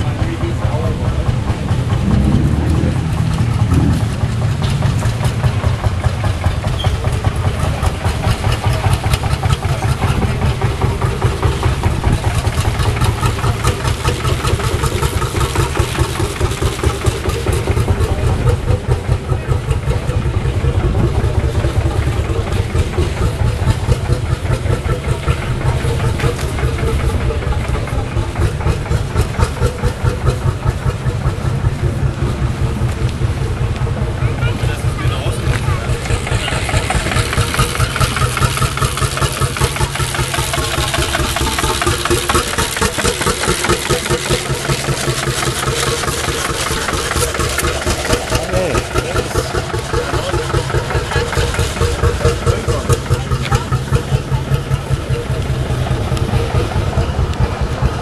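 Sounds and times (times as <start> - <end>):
tractor engine idling: 0.0 - 58.0.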